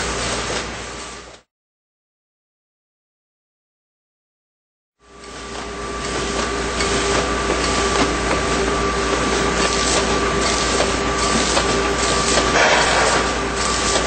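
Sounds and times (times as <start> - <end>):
labeling machine whirring: 5.1 - 14.0
machine clicks: 9.1 - 14.0.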